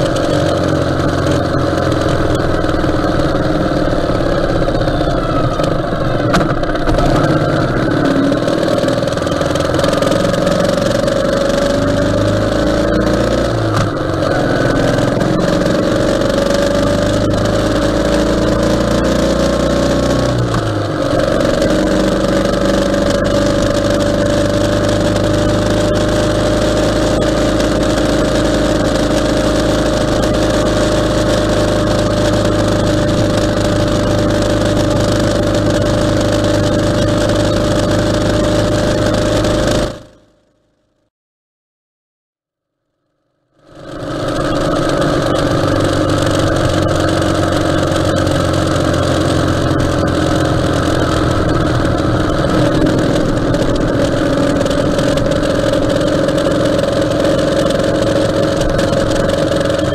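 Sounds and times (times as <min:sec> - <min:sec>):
motorcycle engine running: 0:00.0 - 0:40.6, 0:43.5 - 0:59.9
wind and road noise: 0:43.8 - 0:59.9.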